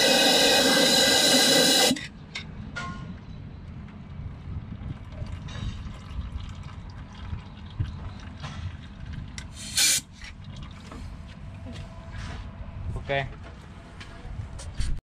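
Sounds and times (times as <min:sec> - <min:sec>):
loud hiss: 0:00.0 - 0:02.0, 0:09.6 - 0:10.0
water splashing and trickling: 0:04.5 - 0:11.5.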